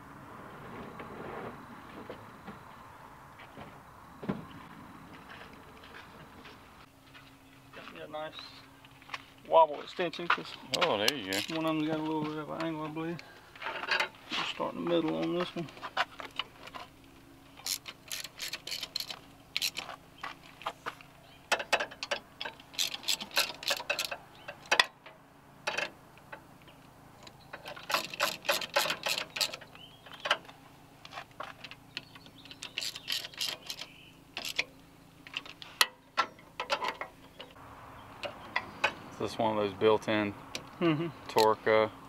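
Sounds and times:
ratchet wrench clicking: 17.6s - 19.8s, 21.5s - 24.9s, 27.8s - 29.6s, 32.5s - 34.6s.

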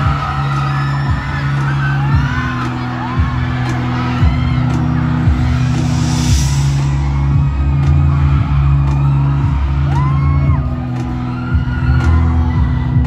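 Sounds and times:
fan screaming: 0.0s - 13.0s
drum hits: 3.2s - 9.7s.

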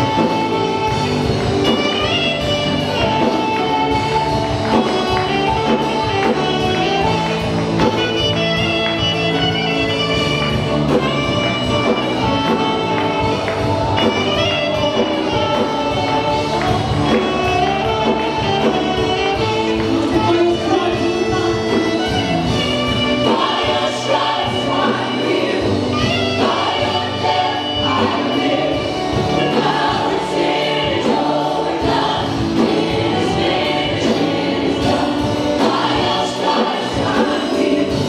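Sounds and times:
band playing worship song: 0.0s - 38.0s
leader and choir singing: 10.9s - 38.0s.

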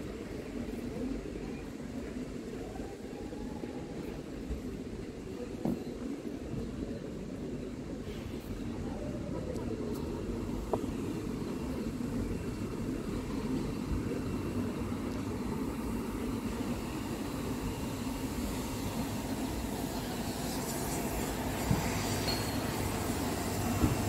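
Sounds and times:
traffic rumble: 6.6s - 24.0s
hiss: 15.6s - 24.0s.

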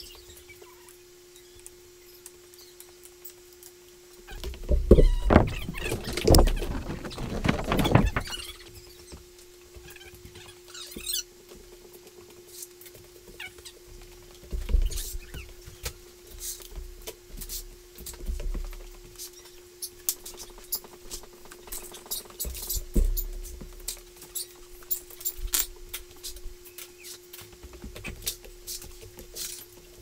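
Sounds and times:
steady low hum: 0.0s - 30.0s
dull thumps: 4.3s - 8.6s
wooden dowels clicking and knocking: 4.4s - 8.6s.

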